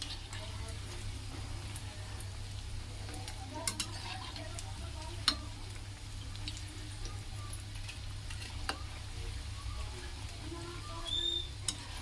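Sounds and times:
potatoes deep-frying in oil: 0.0s - 12.0s
metal spoon clicking on pan: 3.6s - 4.0s, 5.2s - 5.5s.

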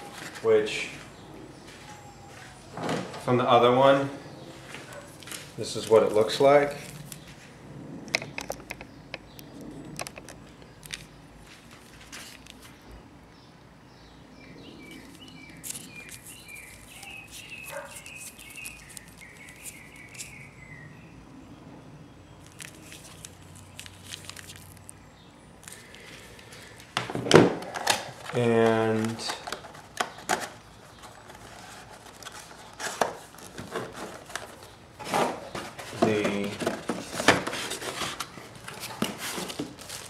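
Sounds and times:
bird chirping: 12.7s - 26.8s
plastic adapter and cable handled: 22.4s - 24.9s, 26.8s - 40.0s.

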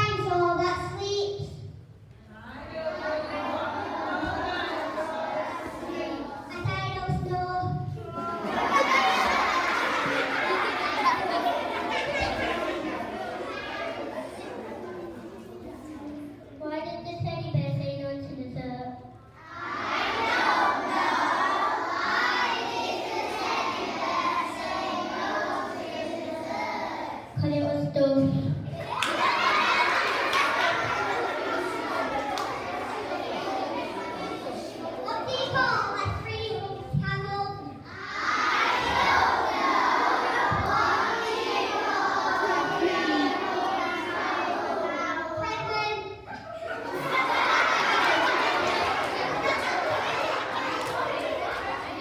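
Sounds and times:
child speaking over loudspeaker: 0.0s - 1.8s, 6.4s - 8.1s, 16.6s - 19.2s, 27.4s - 28.7s, 35.0s - 37.9s, 44.9s - 46.2s
children shouting and cheering: 2.4s - 17.2s, 19.2s - 52.0s.

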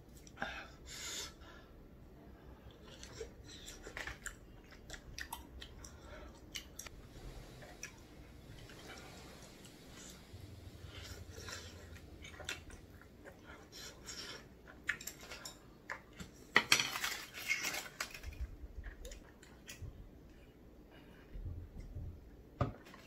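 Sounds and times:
foil rustling: 16.8s - 18.4s.

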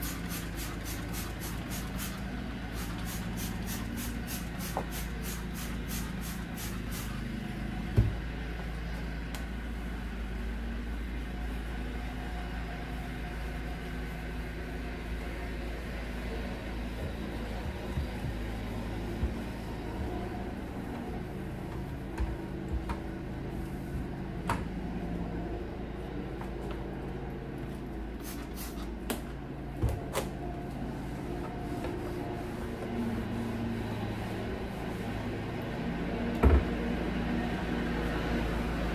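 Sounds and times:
spray bottle spritzing: 0.0s - 7.2s, 28.2s - 28.9s
steady low hum: 0.0s - 28.3s
cloth wiping: 31.0s - 35.2s.

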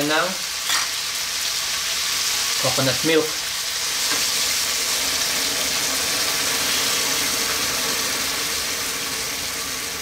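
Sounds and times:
liquid sizzling in hot pan: 0.0s - 10.0s.

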